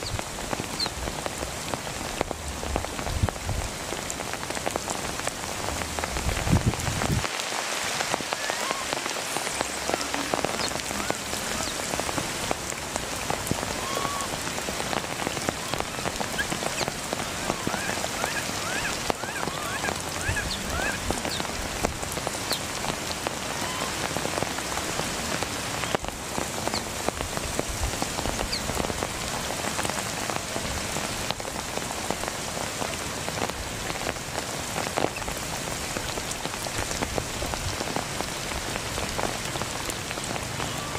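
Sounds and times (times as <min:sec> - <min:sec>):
rain on leaves and puddles: 0:00.0 - 0:40.9.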